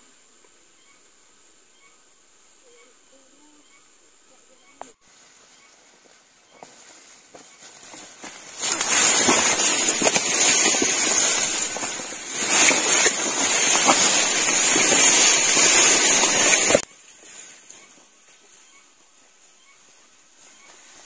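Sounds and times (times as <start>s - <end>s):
rice stalks rustling against microphone: 4.5s - 21.0s.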